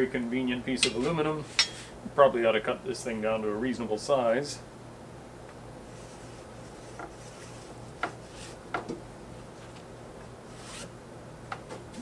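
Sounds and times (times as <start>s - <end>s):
steady low hum: 0.0s - 12.0s
scraping rubs on fabric: 5.8s - 8.6s, 10.5s - 10.9s.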